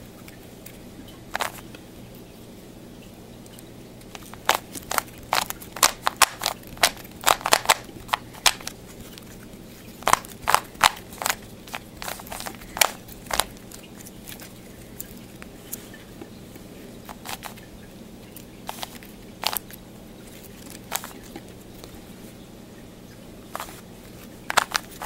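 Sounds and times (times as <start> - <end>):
plastic puzzle cube clicking: 1.3 - 1.6, 4.1 - 8.8, 10.0 - 13.6, 17.1 - 17.6, 18.7 - 19.7, 20.4 - 21.5, 24.5 - 25.0.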